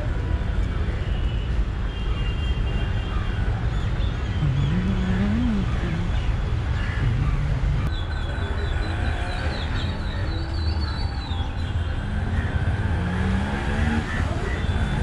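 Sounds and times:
steady low rumble: 0:07.0 - 0:07.9.

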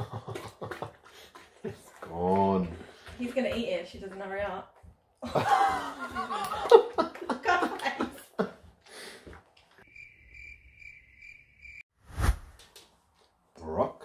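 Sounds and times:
people laughing: 0:00.0 - 0:01.0, 0:05.2 - 0:08.6
people talking: 0:02.1 - 0:04.7, 0:07.3 - 0:08.2.

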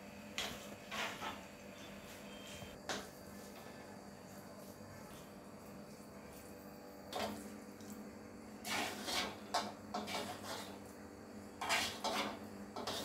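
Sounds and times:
spatula scraping metal pan: 0:00.4 - 0:01.4, 0:08.6 - 0:10.9, 0:11.5 - 0:13.0.

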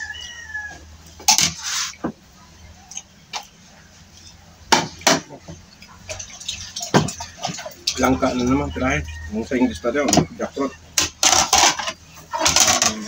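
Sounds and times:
rooster crowing: 0:00.0 - 0:01.0, 0:08.2 - 0:10.1.

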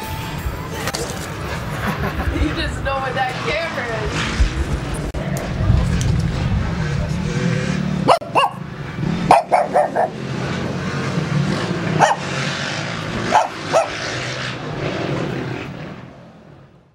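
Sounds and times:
low rumble: 0:00.1 - 0:09.3
dog barking: 0:08.0 - 0:08.6, 0:09.3 - 0:10.2, 0:12.0 - 0:12.4, 0:13.2 - 0:14.0.

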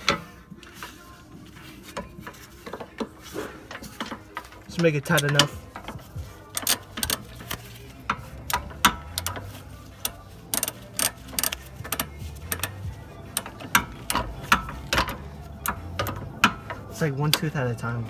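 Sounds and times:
ratchet clicking: 0:03.7 - 0:17.5.

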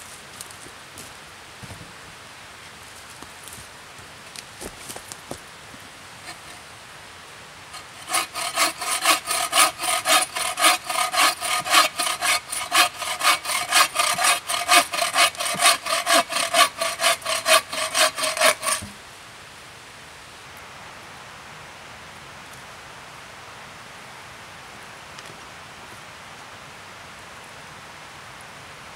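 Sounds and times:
bow saw cutting log: 0:06.2 - 0:06.6, 0:07.7 - 0:19.0.

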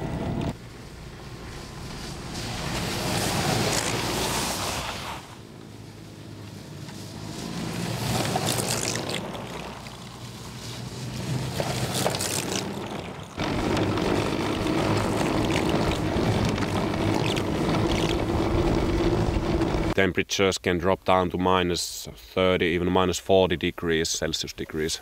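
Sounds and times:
snowmobiles passing: 0:00.0 - 0:20.0
track whirring on snow: 0:00.0 - 0:20.0
electric drive hum: 0:13.4 - 0:20.0.

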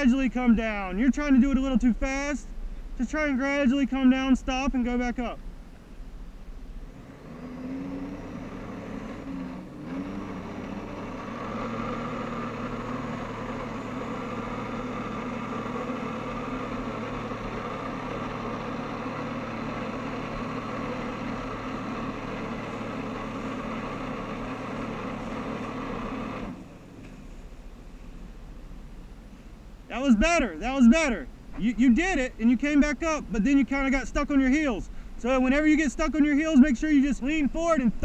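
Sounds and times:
watercraft engine high drone: 0:00.0 - 0:38.0.

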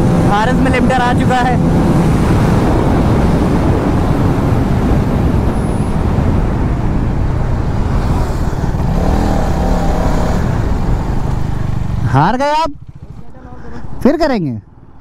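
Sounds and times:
motorcycle engine at high revs: 0:00.0 - 0:06.2, 0:07.3 - 0:14.0
wind rush over microphone: 0:00.0 - 0:12.0.

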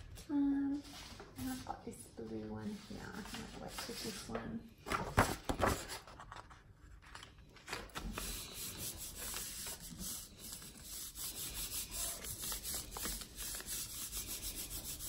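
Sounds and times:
hands rubbing paper: 0:02.7 - 0:04.4, 0:07.9 - 0:15.0.

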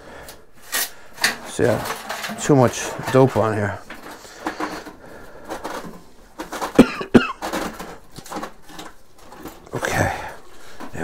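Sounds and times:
person coughing: 0:06.7 - 0:07.6.

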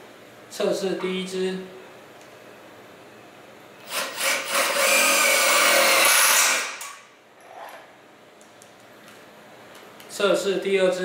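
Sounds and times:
cordless drill driving screw into steel: 0:03.8 - 0:07.0.

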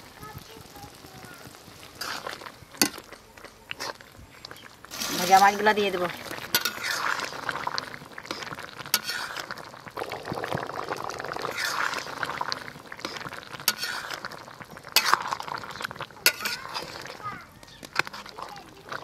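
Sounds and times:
metal spatula stirring curry: 0:06.2 - 0:09.7, 0:11.4 - 0:19.0.

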